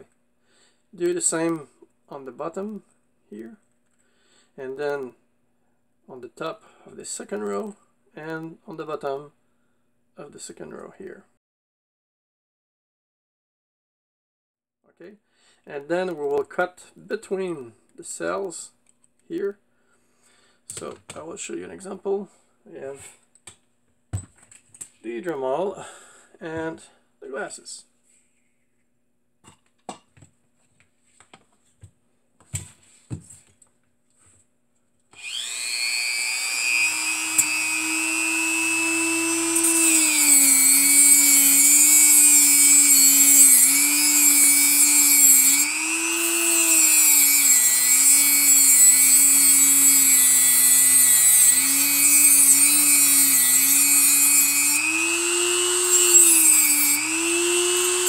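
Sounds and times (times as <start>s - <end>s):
rotary tool whine: 35.2s - 58.0s
disc grinding through metal: 35.4s - 58.0s.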